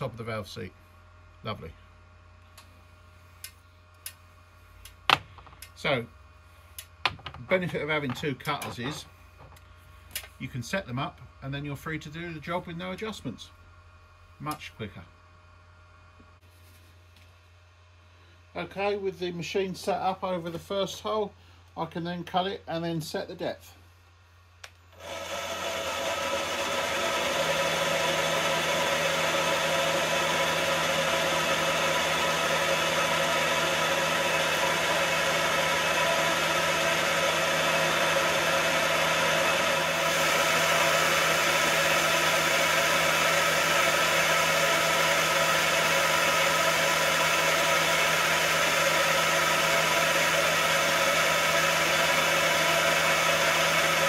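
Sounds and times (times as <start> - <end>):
milling machine spindle running: 25.0 - 54.0.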